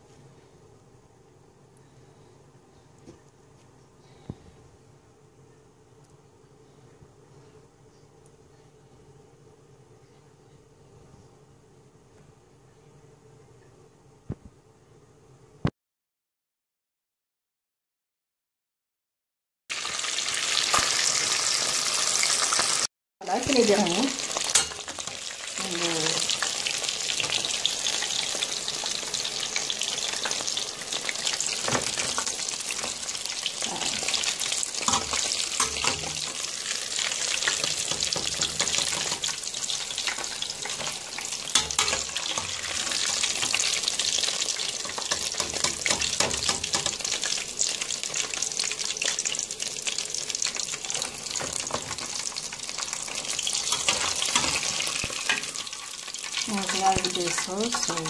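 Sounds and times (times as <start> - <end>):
chicken deep-frying in oil: 19.7 - 58.0.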